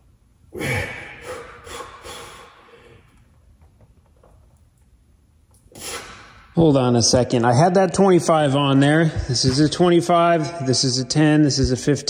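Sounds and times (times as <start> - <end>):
man breathing forcefully: 0.5 - 3.1.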